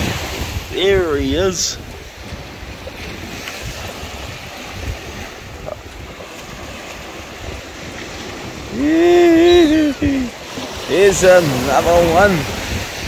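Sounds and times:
small waves washing on sand: 0.0 - 13.0
wind on microphone: 0.0 - 13.0
loud pitched call: 8.8 - 10.2.

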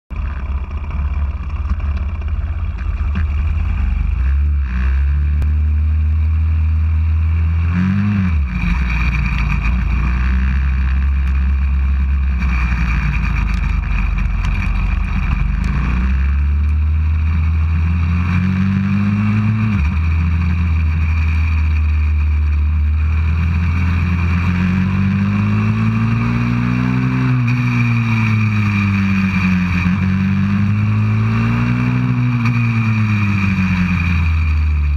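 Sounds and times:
motorbike engine revving: 0.1 - 34.9.

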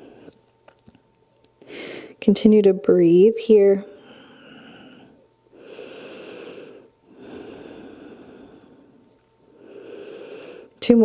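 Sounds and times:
person breathing slowly: 1.6 - 2.2, 3.9 - 10.8.

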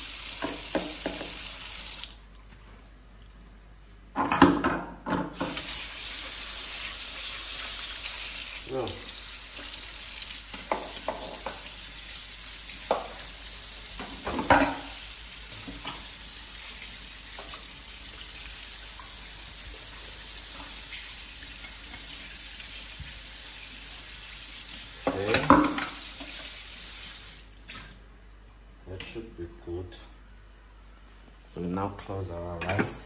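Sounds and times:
food sizzling in a pan: 0.0 - 2.2, 5.4 - 27.5.

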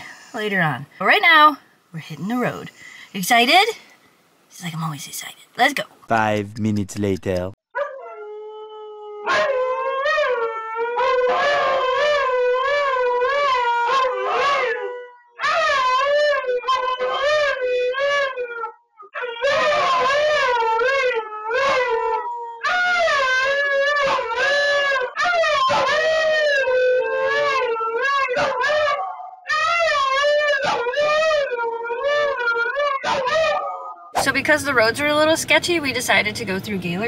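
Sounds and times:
dogs howling: 7.8 - 34.2.

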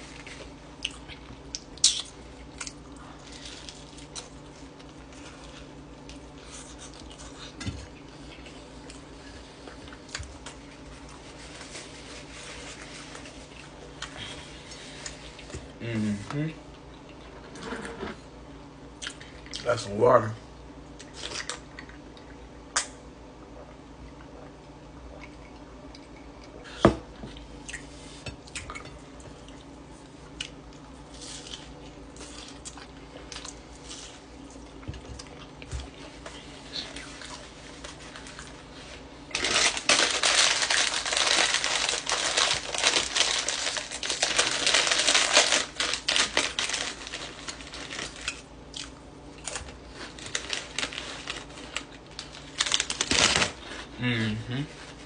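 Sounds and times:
plastic chip bag crinkling: 39.3 - 48.5, 49.4 - 53.9.

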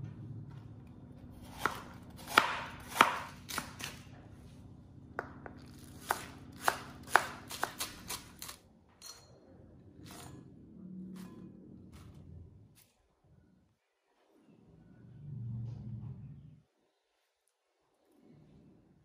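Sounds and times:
knife chopping cabbage on board: 1.4 - 4.0, 5.5 - 8.6.

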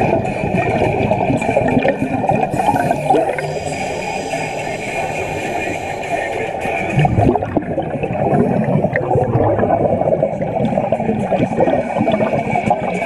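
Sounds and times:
air bubbles churning underwater: 0.0 - 13.0.

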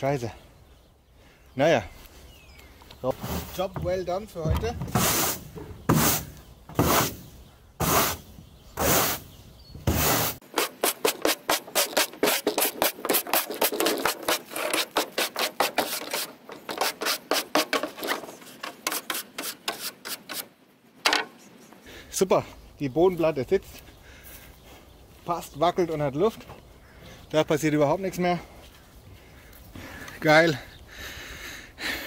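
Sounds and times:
push broom sweeping floor: 4.9 - 7.2, 8.8 - 9.2, 9.9 - 18.2.

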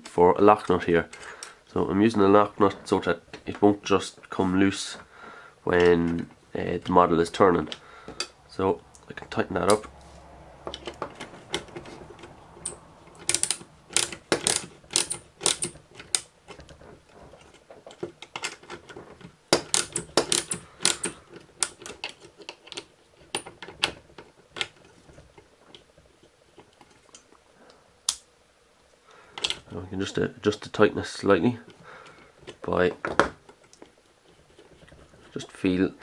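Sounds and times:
metal hand tools clicking: 10.7 - 16.6, 19.5 - 23.5.

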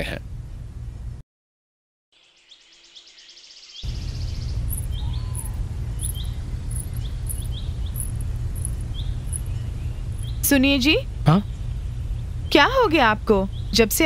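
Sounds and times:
bird chirps: 2.2 - 10.5
high insect chirp: 2.2 - 10.5
steady low rumble: 3.9 - 13.8
fast insect trill: 4.7 - 9.5, 10.1 - 10.5.

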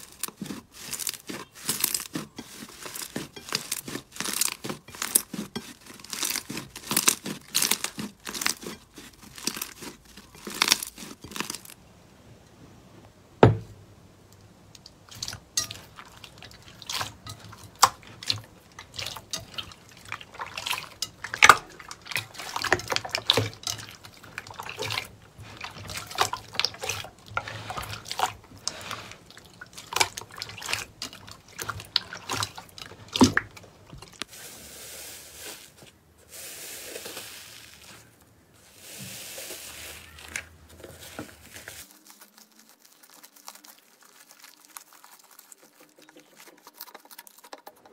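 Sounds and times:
wet slime squelching and dripping: 0.0 - 11.8, 14.7 - 47.9
thump: 13.4 - 13.8.

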